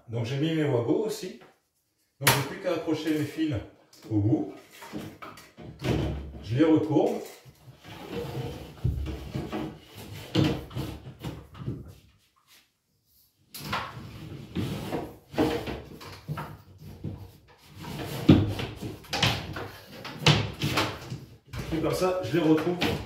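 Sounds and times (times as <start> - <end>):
tape and cable scraping ceiling: 7.6 - 11.5, 13.9 - 23.0.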